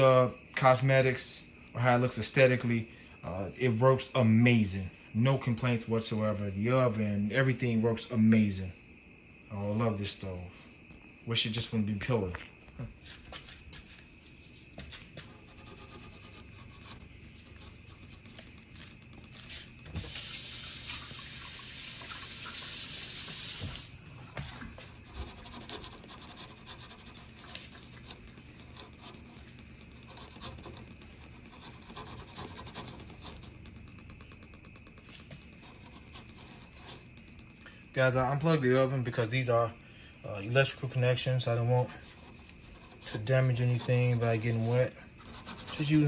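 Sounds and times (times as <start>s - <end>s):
loud steady hiss: 19.4s - 24.1s
sponge scrubbing metal: 25.0s - 33.6s, 42.0s - 46.0s
small clicks and rubs: 25.2s - 37.4s.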